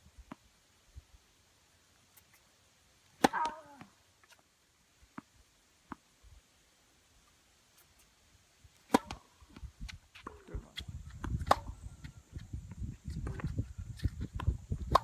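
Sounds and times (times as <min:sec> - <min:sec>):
racket hitting tennis ball: 0:03.2 - 0:03.9, 0:08.8 - 0:09.3, 0:11.2 - 0:11.7, 0:14.4 - 0:15.0.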